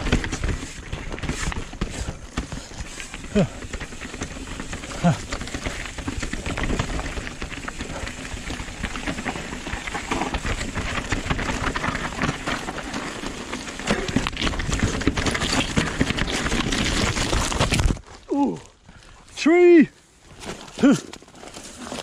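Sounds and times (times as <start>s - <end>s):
bike rattling: 0.0s - 19.2s, 20.2s - 22.0s
bike tyres rumbling over rocks: 0.0s - 19.2s, 20.2s - 22.0s.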